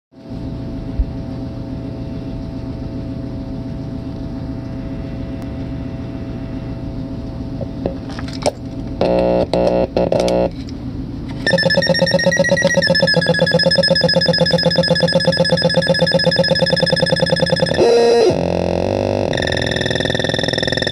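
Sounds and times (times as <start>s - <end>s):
low droning buzz: 0.2s - 20.9s
rapidly pulsing electronic tone: 9.0s - 10.5s, 11.4s - 20.9s
buzzy tone bursts: 9.0s - 10.6s, 11.4s - 20.9s.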